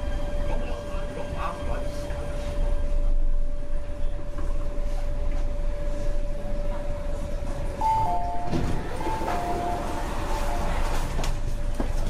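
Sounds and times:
train whine and rumble: 0.0 - 12.0
two-tone door chime: 7.8 - 11.3
doors sliding open: 7.8 - 12.0.

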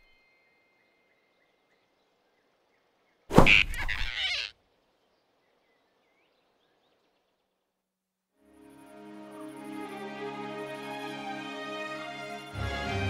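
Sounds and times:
faint forest ambience: 0.0 - 13.0
cartoon whoosh and thump: 3.3 - 4.1.

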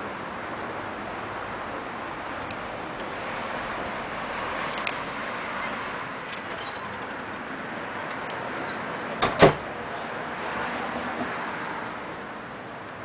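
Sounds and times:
steady noisy background: 0.0 - 13.0
sharp knocks: 9.2 - 9.6.

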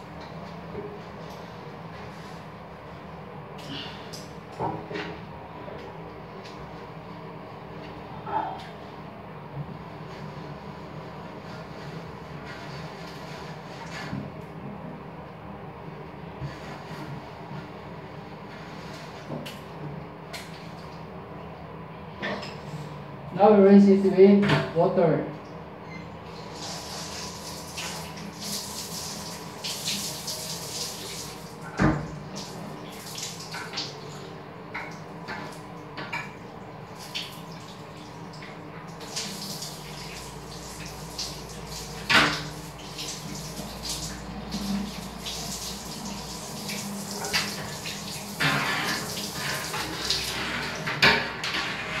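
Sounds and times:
shower spraying water on glass: 26.3 - 34.2, 39.0 - 52.0.

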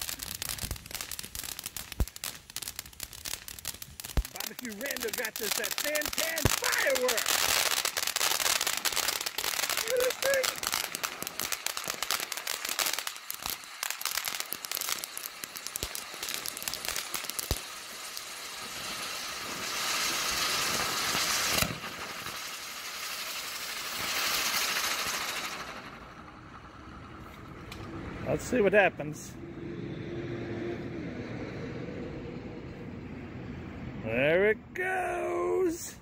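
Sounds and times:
firework hissing: 0.0 - 27.6
firework sparks crackling: 0.0 - 28.8.

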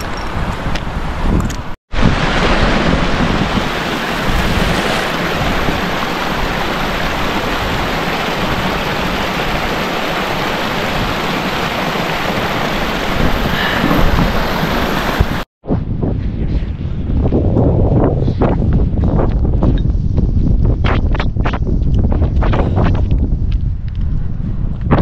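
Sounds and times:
stream rushing over rocks: 1.9 - 15.5.

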